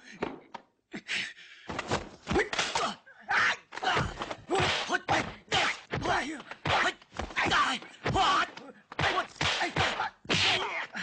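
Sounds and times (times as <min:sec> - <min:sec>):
fighters shouting and grunting: 0:02.2 - 0:11.0
punch and block impacts: 0:03.8 - 0:10.8.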